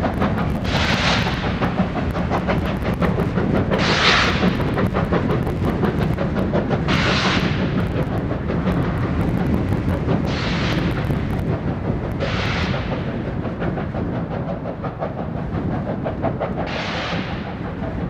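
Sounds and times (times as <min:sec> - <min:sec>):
steam locomotive rumble: 0:00.0 - 0:18.0
steam hiss bursts: 0:03.0 - 0:05.1, 0:10.3 - 0:11.3, 0:16.6 - 0:17.8.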